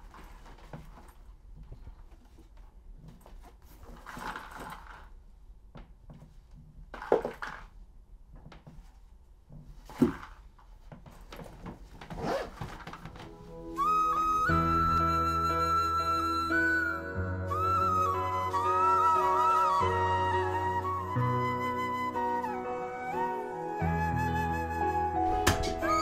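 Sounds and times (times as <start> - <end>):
backpack fabric rustling: 9.8 - 13.8
backpack thumps: 11.2 - 13.3
music with flute-like note: 13.3 - 26.0.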